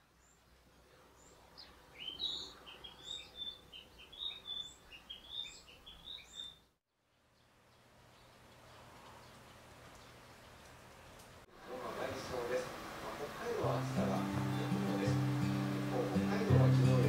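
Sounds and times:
faint background hiss: 0:00.0 - 0:05.8, 0:07.0 - 0:17.0
bird chirping: 0:00.0 - 0:11.2.

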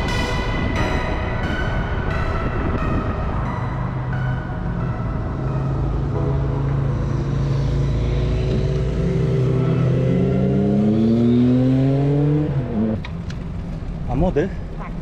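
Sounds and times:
rising engine whine: 0:00.0 - 0:14.1
engine accelerating: 0:02.8 - 0:13.6.

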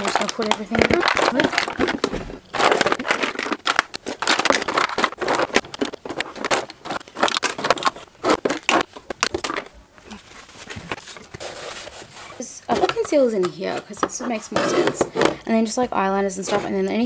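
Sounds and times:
makeup products clattering in a box: 0:00.0 - 0:09.7.

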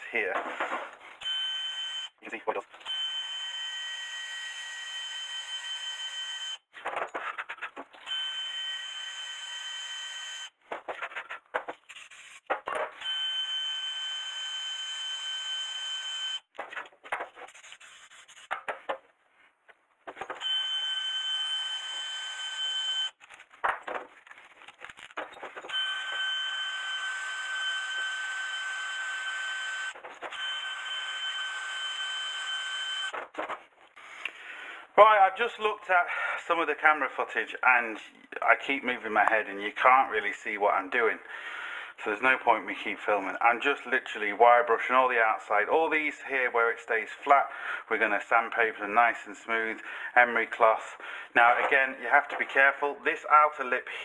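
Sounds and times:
clicks and knocks from handling parts: 0:23.2 - 0:25.7.

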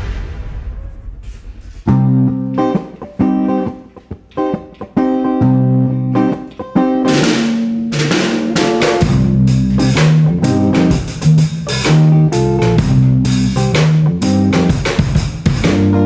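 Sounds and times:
low rumble: 0:00.0 - 0:02.7.

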